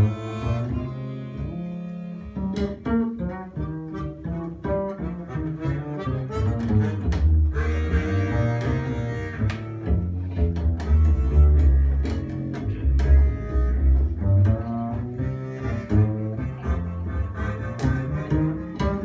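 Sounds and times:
harmonica playing slow melody: 0.0s - 2.4s, 5.0s - 9.8s, 10.8s - 12.0s, 15.2s - 18.9s
plucked double bass: 0.0s - 19.0s.

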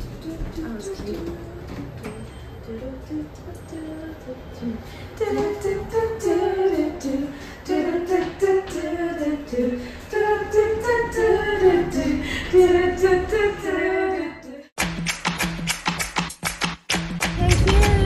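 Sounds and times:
woman singing: 0.0s - 14.7s, 17.2s - 18.0s
light steady beat: 14.8s - 18.0s.

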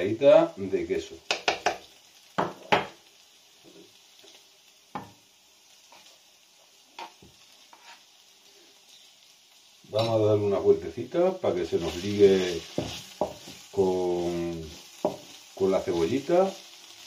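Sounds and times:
onions sizzling: 0.0s - 17.0s
spoon knocking on frying pan: 1.3s - 3.0s, 4.9s - 5.2s, 12.6s - 13.7s, 15.0s - 15.7s.

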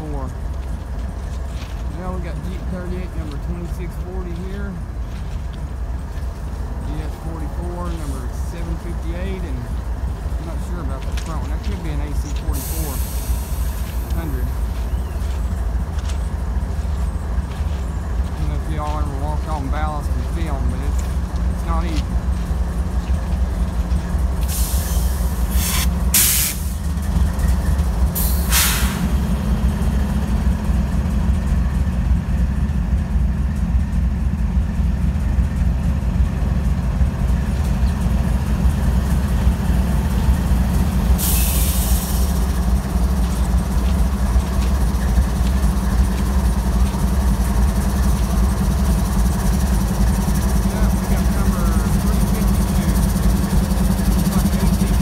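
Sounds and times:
diesel locomotives idling: 0.0s - 55.0s
air hissing: 24.4s - 26.8s, 28.2s - 29.2s, 41.0s - 42.7s.

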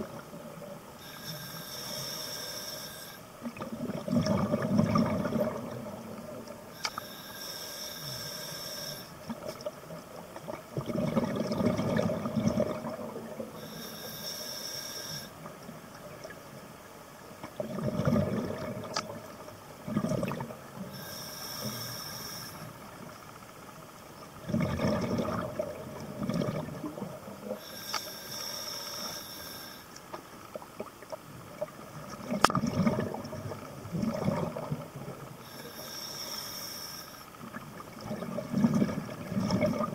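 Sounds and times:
regulator inhale hiss: 1.0s - 3.4s, 6.7s - 9.3s, 13.5s - 15.5s, 20.8s - 23.0s, 27.4s - 30.1s, 35.4s - 37.4s.

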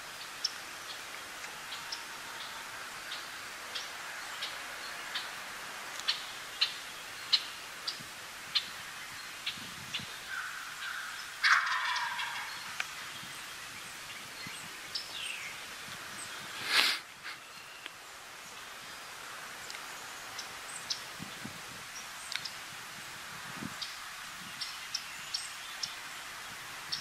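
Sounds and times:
turkey gobbling: 11.4s - 12.7s.

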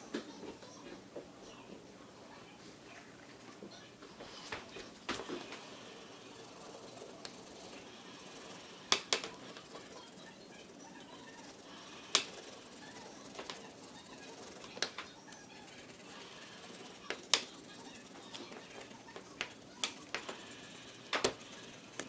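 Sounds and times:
sharp clicks and taps: 19.2s - 20.4s.

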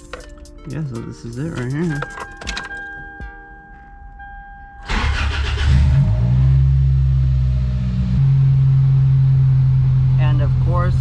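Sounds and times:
car engine starting and idling: 4.8s - 11.0s.

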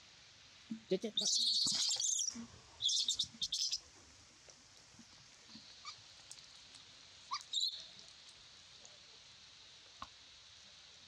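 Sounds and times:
young monkey squealing: 1.2s - 3.8s.

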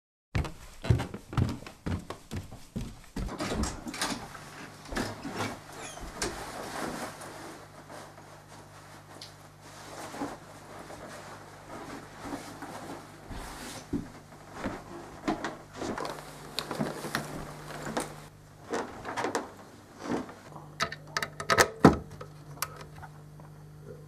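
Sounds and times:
footsteps on a floor: 0.4s - 3.7s, 9.5s - 19.0s.

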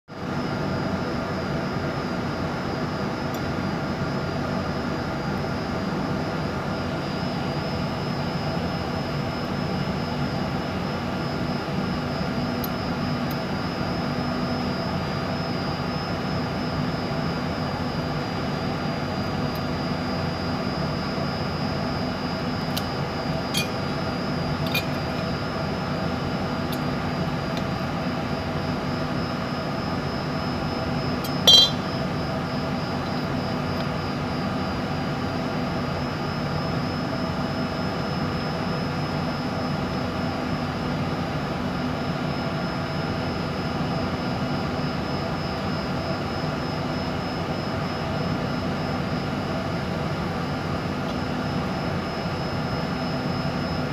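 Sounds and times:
machinery drone: 18.5s - 34.3s.

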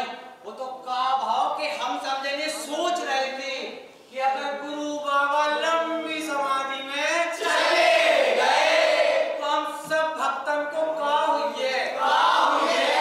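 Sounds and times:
group singing in chorus: 7.4s - 9.4s, 12.0s - 13.0s.

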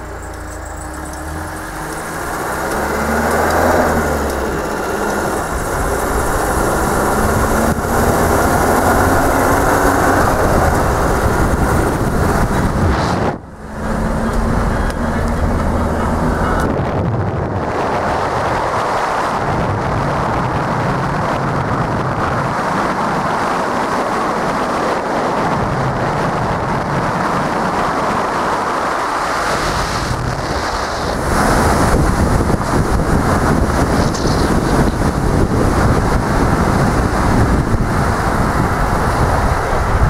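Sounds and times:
car driving noise: 0.0s - 40.0s
wind buffeting microphone: 0.0s - 40.0s.

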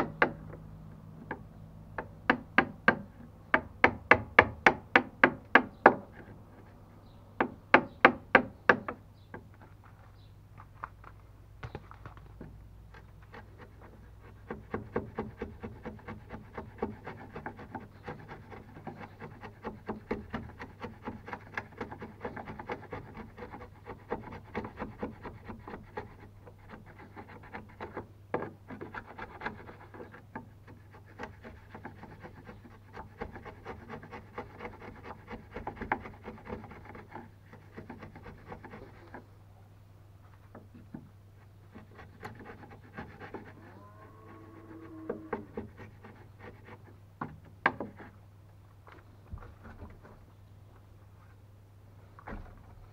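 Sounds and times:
wood chisel scraping wood: 12.4s - 39.3s, 40.4s - 43.7s, 44.3s - 48.2s.

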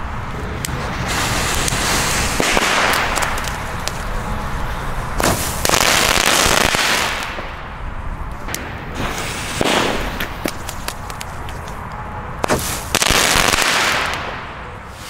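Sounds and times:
crackling fireworks: 0.0s - 15.0s
sharp firework cracks: 1.0s - 4.2s, 5.2s - 7.6s, 8.4s - 11.6s, 12.4s - 15.0s.

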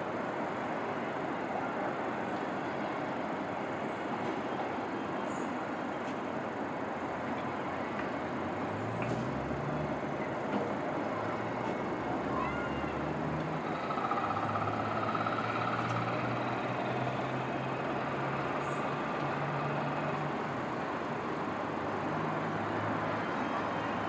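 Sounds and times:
distant traffic rumble: 0.1s - 24.0s
faint high squeal: 11.1s - 16.0s.

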